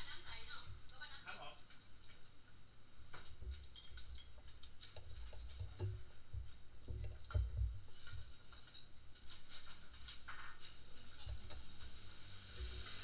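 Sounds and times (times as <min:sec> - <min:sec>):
chopsticks and spoons tapping bowls: 0:03.2 - 0:08.9, 0:10.1 - 0:12.0.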